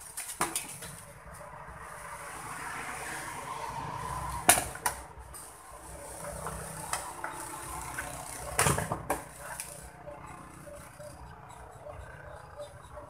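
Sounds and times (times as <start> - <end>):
clicks of boards and tools on wood: 0.0 - 1.0, 6.2 - 9.9.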